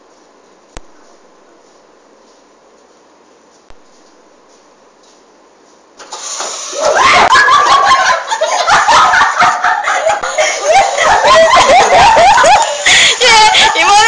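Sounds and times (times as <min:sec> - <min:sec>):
women shrieking and laughing: 0:06.7 - 0:14.0.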